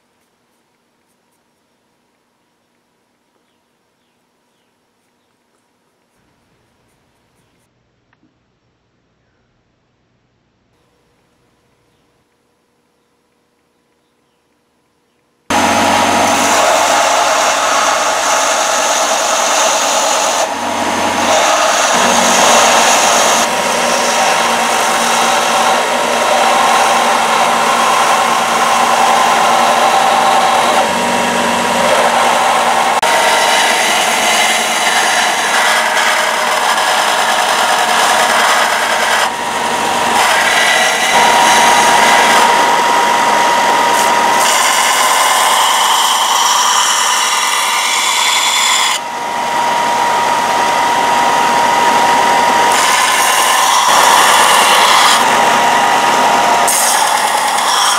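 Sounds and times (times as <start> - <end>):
motor whine: 15.5 - 47.9, 48.8 - 57.9
belt sander grinding knife blade: 15.5 - 49.1, 52.0 - 57.9.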